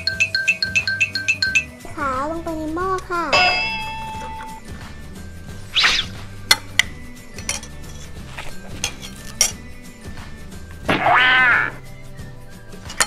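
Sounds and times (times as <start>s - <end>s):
background music: 0.0s - 13.0s
spoon clinking against metal pot: 6.5s - 9.7s.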